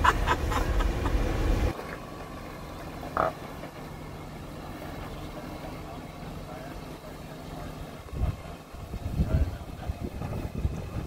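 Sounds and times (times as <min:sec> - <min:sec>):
engine running low: 0:00.0 - 0:11.0
croak-like call: 0:03.2 - 0:03.4.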